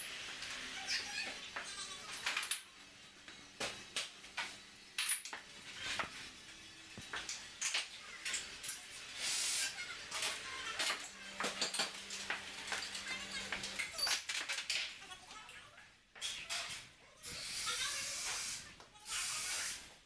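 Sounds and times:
crockery and cutlery clinking: 10.2s - 15.0s.

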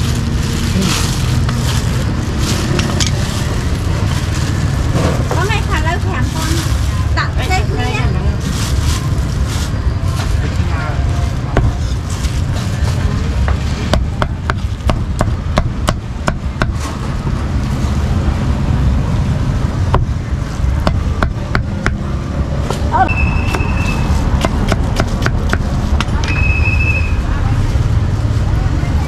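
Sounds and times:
steady low rumble: 0.0s - 26.2s.

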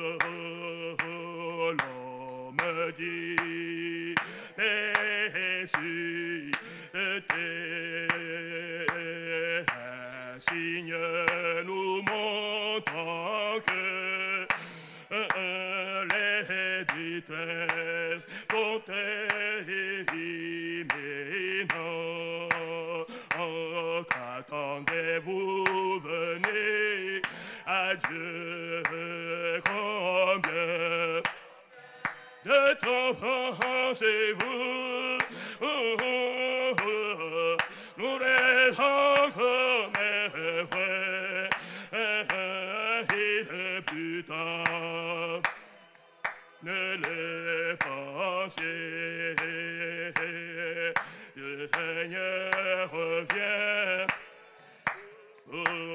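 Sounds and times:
hand claps: 0.0s - 55.9s
man's voice leading singing: 0.0s - 55.9s.

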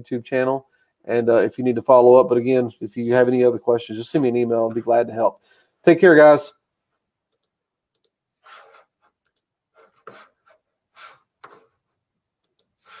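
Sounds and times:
computer mouse clicks: 7.3s - 8.2s, 9.2s - 9.5s, 12.4s - 13.0s
soft puffs into microphone: 8.4s - 8.9s.

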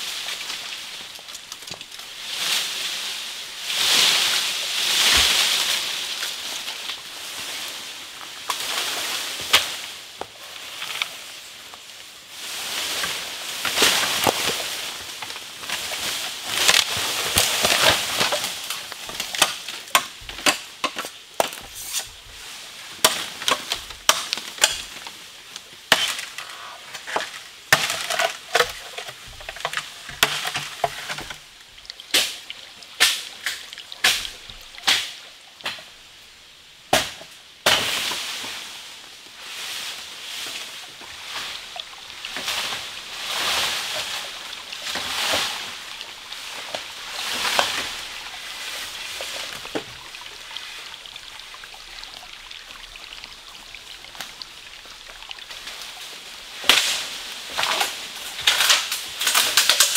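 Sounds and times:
rustling hiss: 0.0s - 59.9s.

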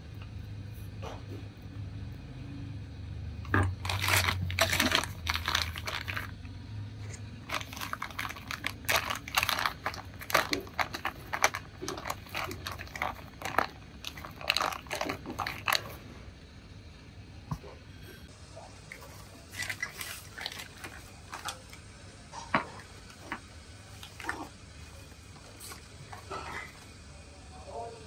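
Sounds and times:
plastic bag crinkling: 3.5s - 6.4s, 7.4s - 16.0s, 18.9s - 21.8s, 22.5s - 26.9s.

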